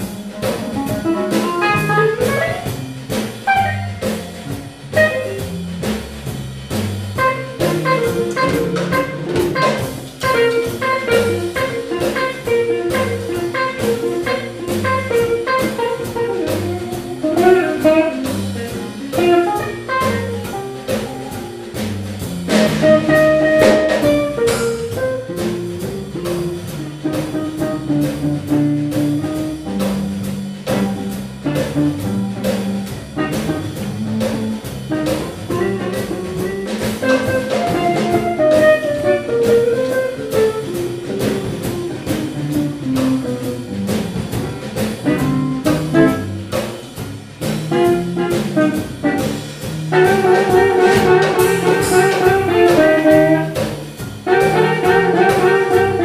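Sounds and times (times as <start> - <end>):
electric guitar: 0.0 - 5.6, 7.2 - 56.0
bass: 0.0 - 56.0
drum kit with cymbals: 0.0 - 56.0
brass horn: 1.3 - 2.8, 3.4 - 5.5, 7.2 - 25.8, 33.2 - 42.2, 45.0 - 46.6, 47.6 - 56.0.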